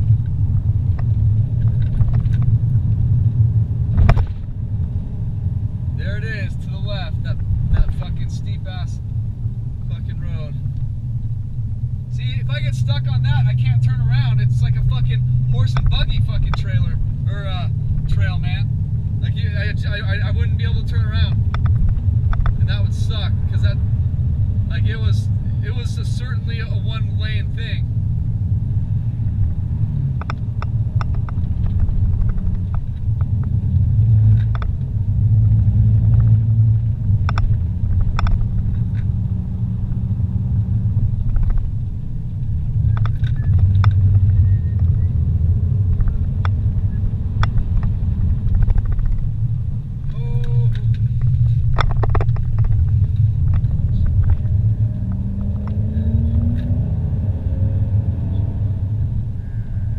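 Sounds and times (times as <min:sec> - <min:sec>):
car engine and tyres rumbling: 0:00.0 - 0:59.9
light clicks and rattles: 0:20.6 - 0:23.2, 0:37.2 - 0:39.1, 0:41.2 - 0:45.0, 0:45.9 - 0:54.6.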